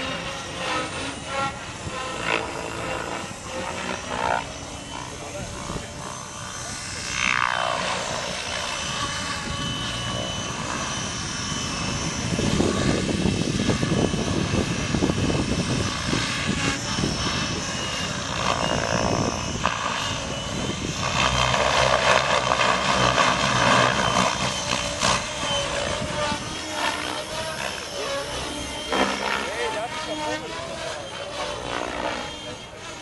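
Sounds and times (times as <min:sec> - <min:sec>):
rc helicopter motor whine: 0:00.0 - 0:33.0
rotor blades rushing: 0:00.0 - 0:33.0.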